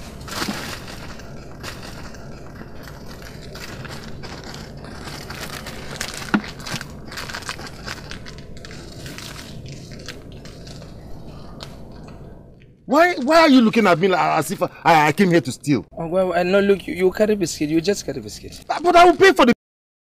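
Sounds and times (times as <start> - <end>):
biscuit packet crinkling: 0.0 - 11.8
crunching: 0.0 - 14.7
low steady hum: 0.0 - 19.5.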